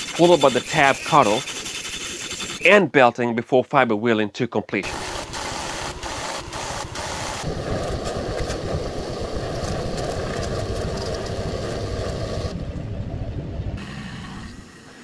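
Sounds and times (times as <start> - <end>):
bench grinder grinding metal: 0.0 - 2.6
belt sander on metal: 0.0 - 2.7, 4.8 - 7.5.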